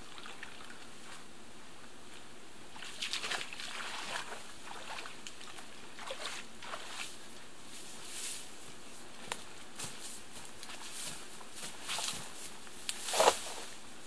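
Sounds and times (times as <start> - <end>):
steady faint hiss: 0.0 - 14.0
water sloshing and dripping: 2.8 - 7.0
wooden plank scraping: 13.0 - 13.7.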